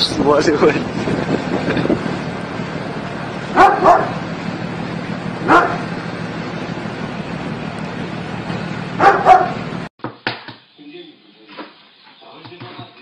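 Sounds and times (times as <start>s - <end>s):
steady rushing background noise: 0.0s - 9.9s
dog barking: 3.5s - 4.2s, 5.4s - 5.9s, 9.0s - 9.6s.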